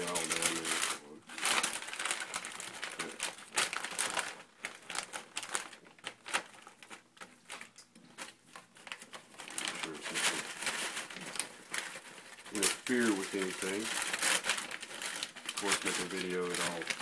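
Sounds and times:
plastic bag crinkling: 0:00.0 - 0:17.0.

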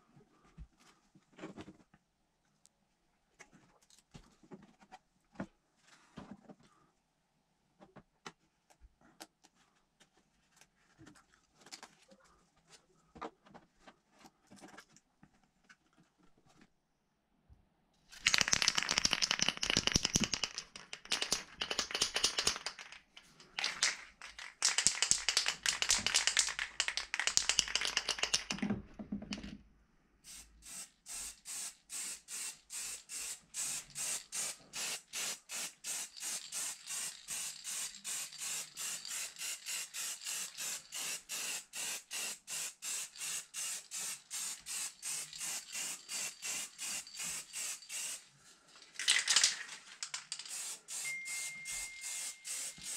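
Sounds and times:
spray can ball rattling: 0:18.1 - 0:28.6, 0:30.3 - 0:52.9
short hisses of paint spraying: 0:30.2 - 0:48.3, 0:50.4 - 0:51.1, 0:51.8 - 0:52.9.

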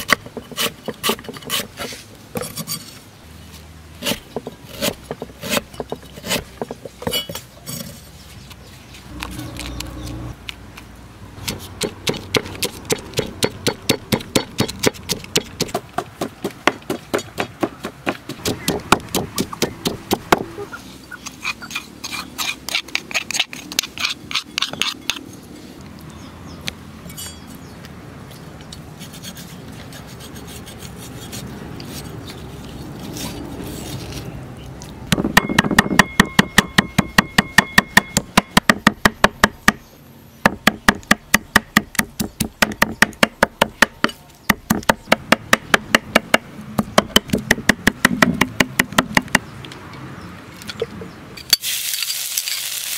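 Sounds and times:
cleaver chopping on wooden board: 0:11.4 - 0:20.6, 0:40.5 - 0:49.4
pestle pounding in wooden mortar: 0:11.5 - 0:20.6, 0:35.1 - 0:39.8, 0:40.5 - 0:49.4.

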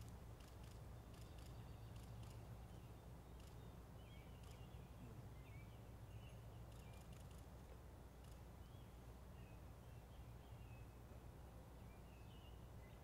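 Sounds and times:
low steady hum: 0:00.0 - 0:13.0
faint bird chirps: 0:00.4 - 0:07.4.

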